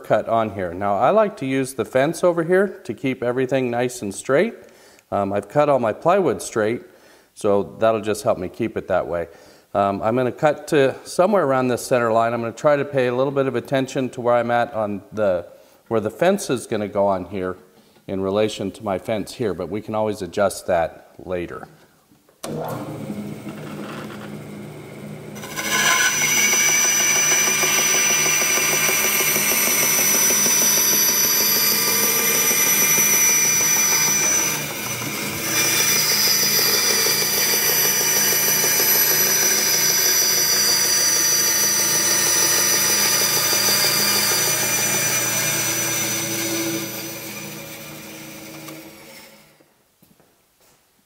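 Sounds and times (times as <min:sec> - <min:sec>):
bandsaw motor running: 0:22.5 - 0:49.5
saw blade cutting plywood: 0:25.4 - 0:49.5.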